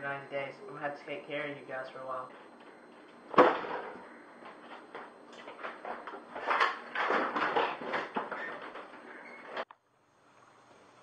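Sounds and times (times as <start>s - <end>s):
handling knocks and rustles: 2.4s - 9.7s.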